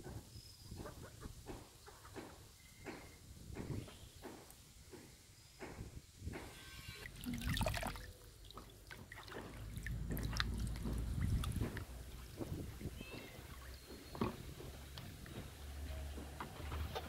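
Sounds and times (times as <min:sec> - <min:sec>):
water trickling from colander: 0:07.0 - 0:14.5
hands swishing water in basin: 0:07.2 - 0:15.4.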